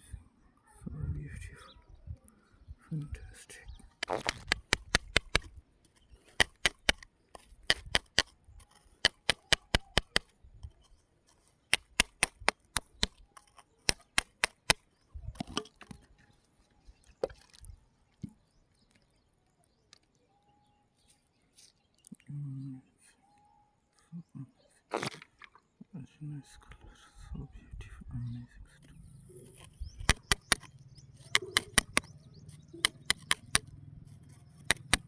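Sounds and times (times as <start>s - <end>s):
sharp clicks: 4.0s - 10.9s, 11.7s - 16.0s, 28.8s - 33.7s, 34.3s - 35.0s.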